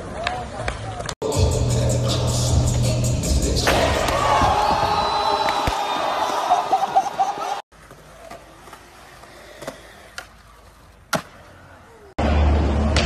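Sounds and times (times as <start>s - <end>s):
skateboard wheels rolling on concrete: 0.0s - 1.2s, 3.7s - 13.0s
group shouting and cheering: 3.6s - 7.6s
skateboard clacking: 7.7s - 11.8s.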